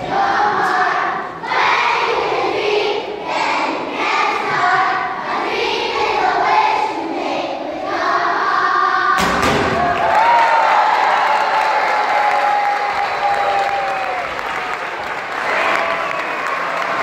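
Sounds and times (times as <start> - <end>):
children singing together: 0.0 - 9.2
thump: 9.2 - 10.0.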